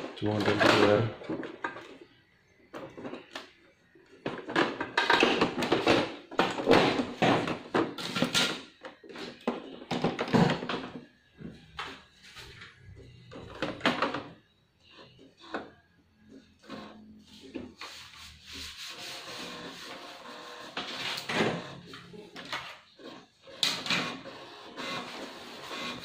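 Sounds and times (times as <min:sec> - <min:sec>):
plastic parts knocking and clunking: 0:00.2 - 0:03.5, 0:04.1 - 0:12.1, 0:13.1 - 0:14.6.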